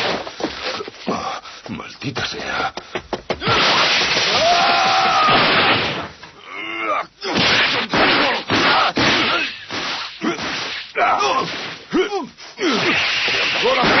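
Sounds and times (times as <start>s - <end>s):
pained cries and grunts: 6.4s - 7.4s, 11.0s - 13.0s
punch impacts: 7.3s - 11.9s, 12.7s - 14.0s.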